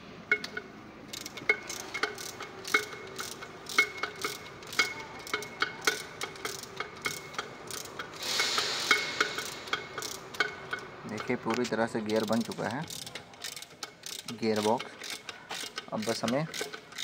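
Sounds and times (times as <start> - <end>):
metallic clinks: 0.3 - 17.0
brief scraping hiss: 8.2 - 9.6.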